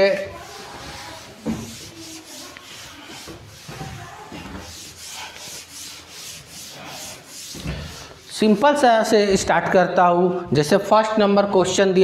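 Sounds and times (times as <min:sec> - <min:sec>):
duster rubbing chalkboard: 0:00.0 - 0:09.0.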